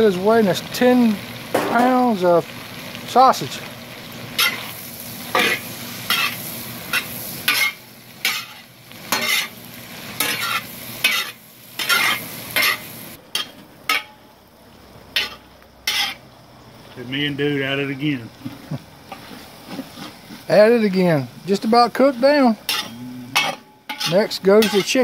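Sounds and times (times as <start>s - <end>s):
sausage sizzling: 0.0s - 25.0s
metal spoon scraping a pot: 5.4s - 9.5s, 10.2s - 12.8s, 15.2s - 16.2s, 22.7s - 25.0s.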